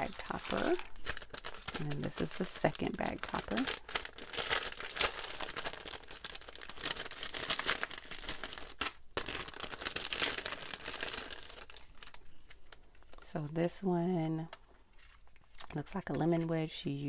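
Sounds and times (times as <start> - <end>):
cellophane bag crinkling: 0.0 - 13.4.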